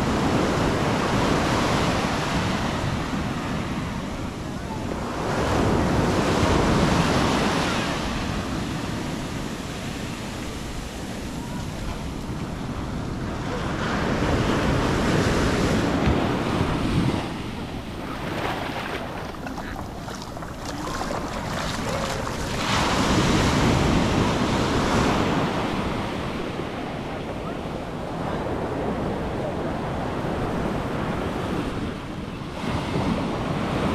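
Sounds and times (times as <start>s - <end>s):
wind buffeting microphone: 14.6s - 26.9s
surf breaking on sand: 14.9s - 26.2s.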